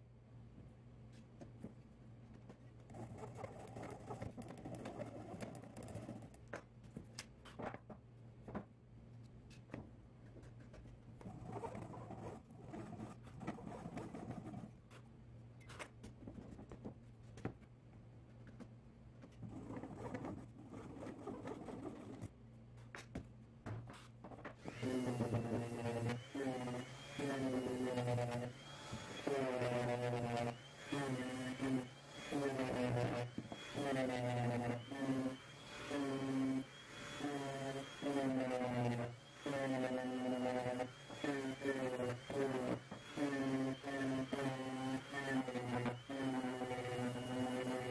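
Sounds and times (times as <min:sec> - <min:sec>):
pull saw rasping strokes: 0:24.6 - 0:47.9.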